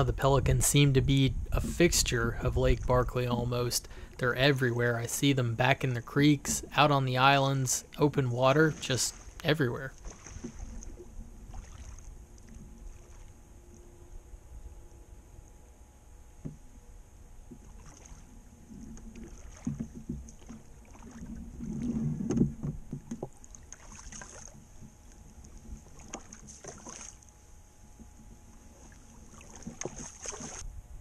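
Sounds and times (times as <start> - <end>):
oar splashing in water: 6.1 - 13.4, 17.4 - 27.3, 28.0 - 30.6
knocks in boat hull: 19.5 - 20.6, 21.9 - 23.4.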